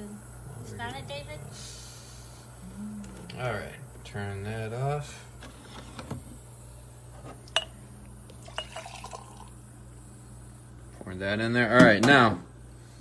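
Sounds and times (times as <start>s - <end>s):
steady low hum: 0.0s - 13.0s
cups and dishes clinking: 7.5s - 9.5s.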